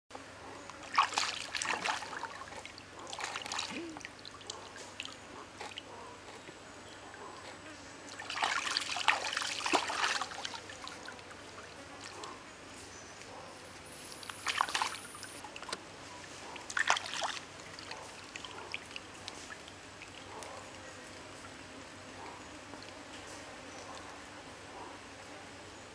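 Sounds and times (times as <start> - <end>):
stream flowing: 0.8 - 5.8, 8.1 - 12.5, 13.8 - 23.0
hands splashing in water: 0.9 - 2.4, 3.1 - 5.1, 8.2 - 11.1, 14.2 - 15.8, 16.6 - 19.7.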